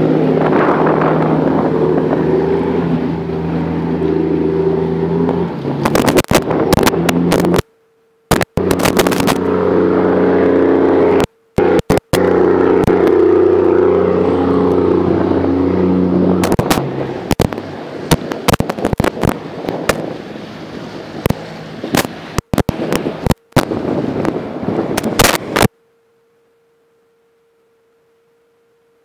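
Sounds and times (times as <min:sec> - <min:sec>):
boat diesel engine humming: 0:00.0 - 0:29.0.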